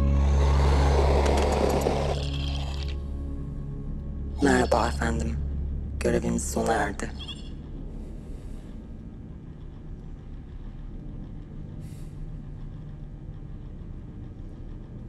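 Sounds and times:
low ambient hum: 0.0s - 15.0s.

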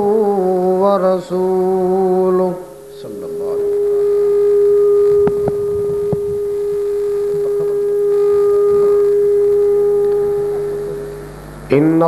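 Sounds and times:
microphone feedback ringing tone: 3.0s - 12.0s.

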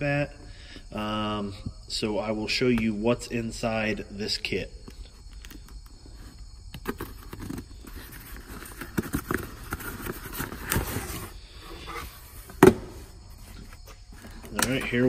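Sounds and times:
cardboard scraping and rustling: 5.4s - 15.0s.

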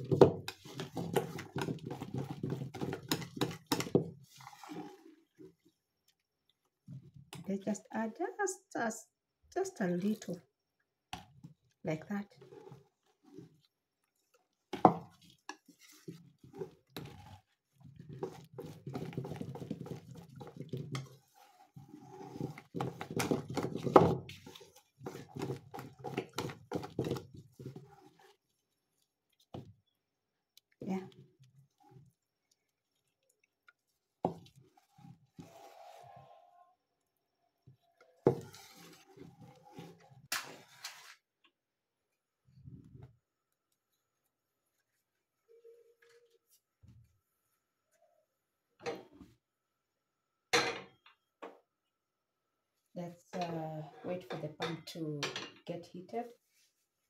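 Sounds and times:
utensil beating batter in bowl: 0.0s - 6.2s, 11.1s - 36.0s, 37.6s - 41.0s
soft scrapes in bowl: 0.4s - 5.8s, 12.0s - 29.7s, 30.9s - 36.8s, 38.1s - 41.3s, 56.0s - 57.0s.

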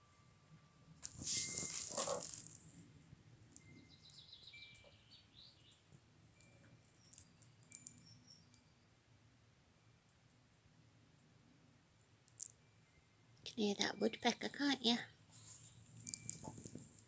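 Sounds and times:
loud rustling crackling: 1.0s - 2.7s.

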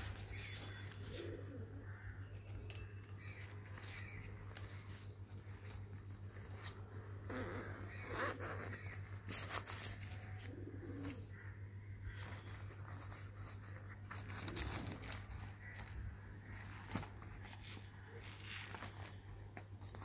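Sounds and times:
zipper pulls and buckles clinking: 4.6s - 10.2s, 14.1s - 19.2s
fabric rustling: 12.1s - 20.0s.

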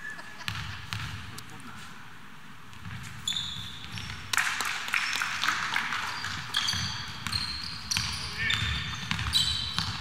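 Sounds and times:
sneakers squeaking: 0.0s - 1.9s, 2.8s - 4.3s, 5.9s - 10.0s
gym hall noise: 0.0s - 10.0s
basketball dribbling on court: 0.5s - 1.4s, 2.8s - 4.3s, 6.2s - 10.0s.

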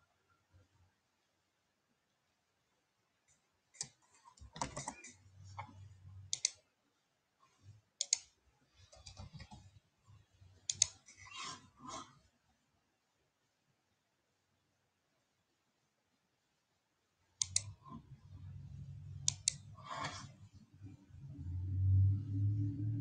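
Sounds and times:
computer keyboard typing: 3.8s - 5.2s, 6.3s - 6.6s, 8.9s - 9.7s, 10.7s - 11.0s, 17.4s - 17.8s.

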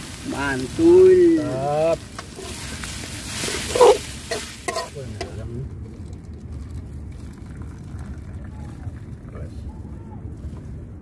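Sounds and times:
food sizzling in a wok: 0.0s - 5.4s
metal ladle scraping wok: 2.2s - 5.4s.

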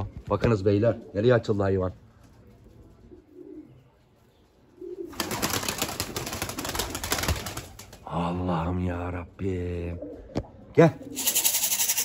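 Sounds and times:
pigeons cooing: 2.9s - 4.0s, 4.6s - 8.2s, 9.8s - 12.0s.

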